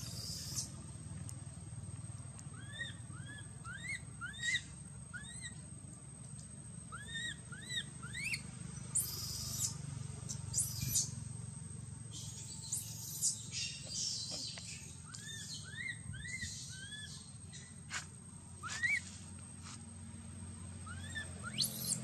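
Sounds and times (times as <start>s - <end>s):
baby monkey crying: 10.5s - 11.1s, 20.9s - 22.0s.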